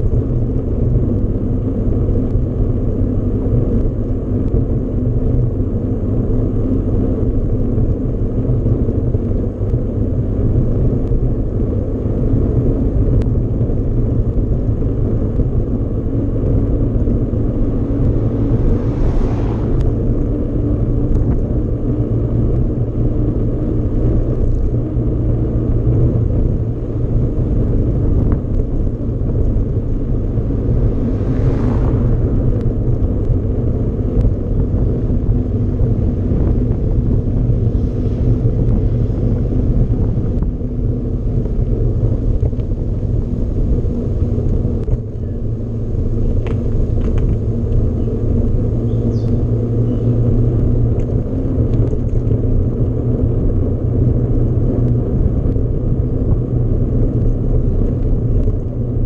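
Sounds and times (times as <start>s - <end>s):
wind on microphone: 0.0s - 59.0s.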